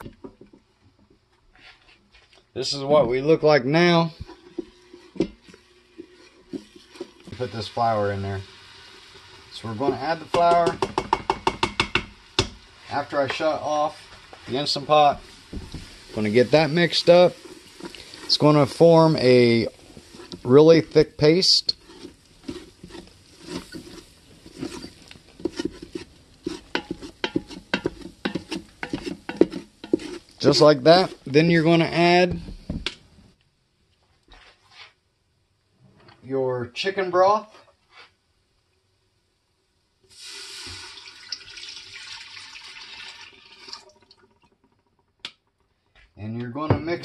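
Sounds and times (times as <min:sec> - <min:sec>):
utensil scraping metal pot: 0:03.8 - 0:32.2.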